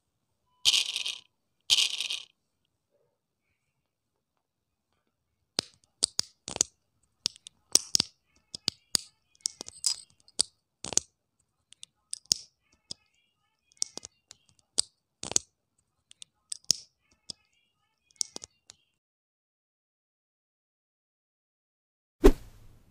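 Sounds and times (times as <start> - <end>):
plastic bricks clicking: 0.7 - 2.3, 5.6 - 11.1, 11.7 - 13.0, 13.7 - 15.5, 16.1 - 17.4, 18.1 - 18.8.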